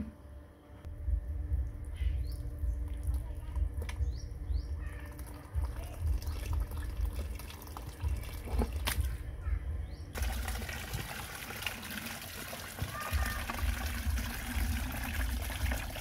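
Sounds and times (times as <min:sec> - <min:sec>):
low rumble: 0:00.8 - 0:10.2
water splashing into plastic bucket: 0:05.0 - 0:09.1, 0:10.2 - 0:16.0.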